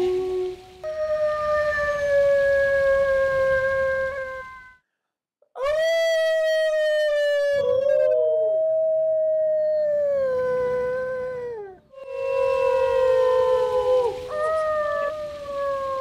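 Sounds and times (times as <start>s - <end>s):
wolf howling: 5.6s - 16.0s.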